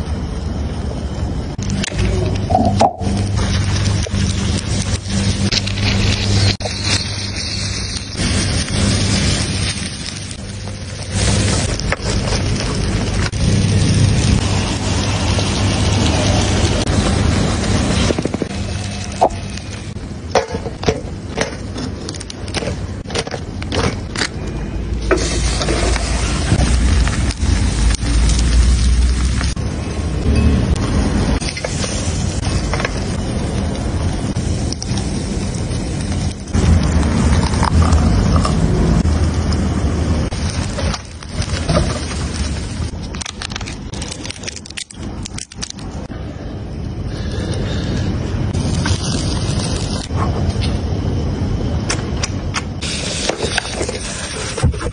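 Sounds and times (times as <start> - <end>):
low rumble: 0.0 - 51.9
crab sizzling on a grill: 1.5 - 46.1, 47.1 - 50.8, 52.8 - 54.9
sharp crackles and clicks: 1.5 - 46.1, 48.5 - 54.9
crab shell crackling: 40.3 - 46.0.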